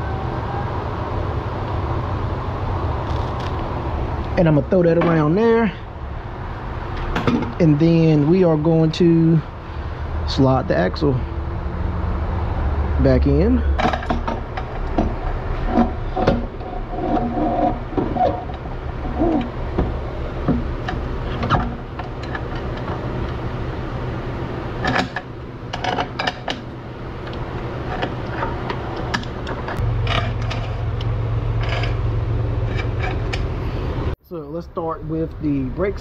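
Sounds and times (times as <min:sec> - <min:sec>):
metal scraping with squeal: 0:15.2 - 0:19.6, 0:29.8 - 0:34.0
metal clinks and knocks: 0:27.9 - 0:33.6.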